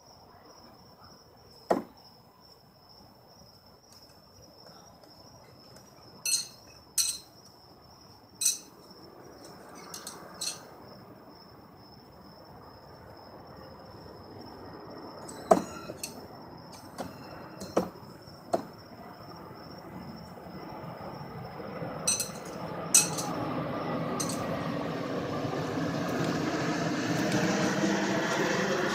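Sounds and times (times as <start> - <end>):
crickets trilling: 0.0 - 28.9
hard knocks: 1.7 - 1.9
knife clinking and clicking: 6.2 - 7.3, 8.4 - 8.8, 9.5 - 10.7, 22.1 - 23.4, 24.2 - 24.5.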